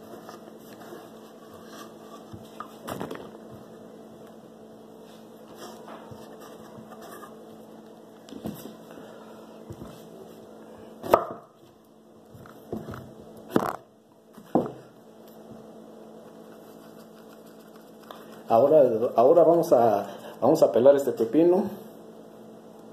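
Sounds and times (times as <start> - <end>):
steady low hum: 0.0 - 22.9
knife chopping on wooden board: 11.0 - 11.5.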